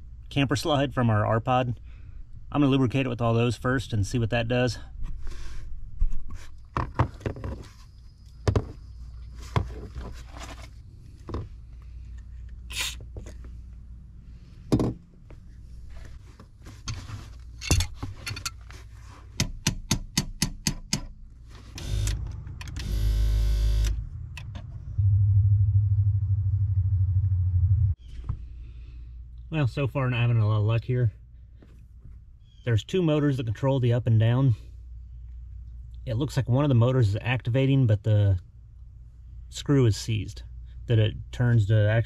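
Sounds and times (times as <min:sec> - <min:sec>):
tools clicking and scraping on metal: 0:16.8 - 0:18.8.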